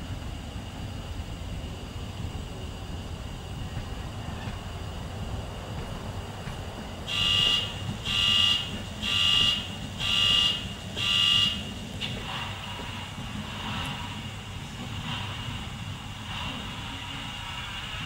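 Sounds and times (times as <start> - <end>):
high-pitched alarm beeps: 7.1 - 11.7.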